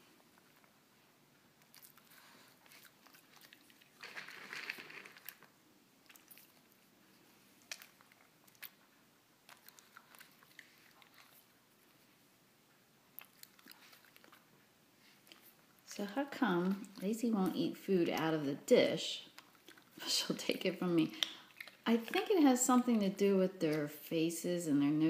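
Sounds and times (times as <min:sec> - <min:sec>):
dog crunching dry kibble: 0:01.6 - 0:06.8, 0:07.6 - 0:08.8, 0:09.5 - 0:11.5, 0:19.2 - 0:23.1.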